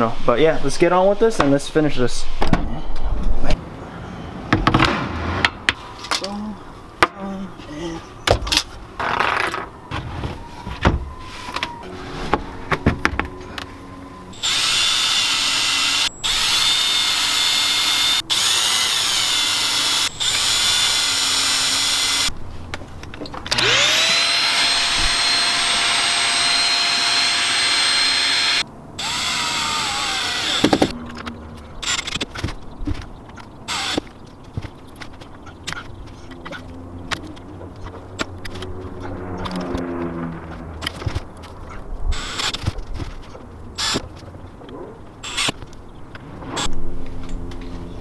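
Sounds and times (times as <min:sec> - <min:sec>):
power drill whining: 0:14.3 - 0:22.3, 0:23.5 - 0:30.9, 0:31.8 - 0:32.2, 0:33.7 - 0:34.0, 0:42.2 - 0:42.6, 0:43.8 - 0:44.0, 0:45.2 - 0:45.6.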